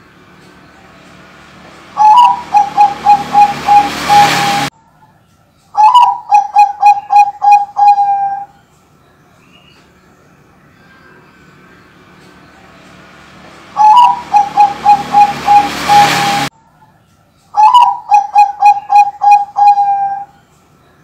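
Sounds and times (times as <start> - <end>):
dove cooing: 2.0 - 4.7, 5.8 - 8.5, 13.8 - 16.5, 17.6 - 20.3.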